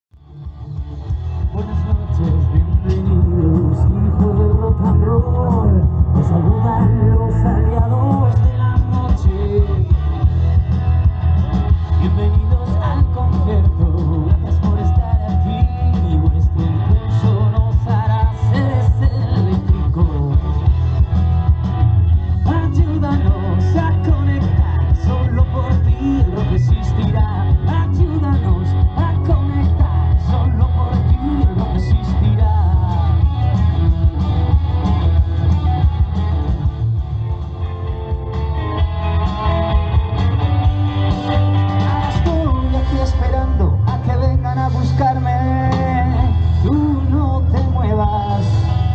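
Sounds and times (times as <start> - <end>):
heavy bass line: 0.1 - 48.9
electric guitars: 0.2 - 48.9
live rock band playing: 0.2 - 48.9
person singing: 1.4 - 10.6, 11.8 - 20.8, 22.3 - 34.9, 40.8 - 48.9.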